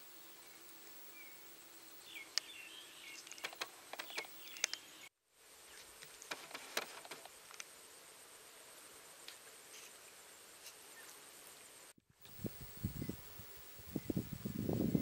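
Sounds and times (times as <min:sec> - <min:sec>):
birds chirping: 0:00.0 - 0:05.1, 0:12.3 - 0:15.0
insects: 0:00.0 - 0:15.0
sharp clicks: 0:03.2 - 0:04.8.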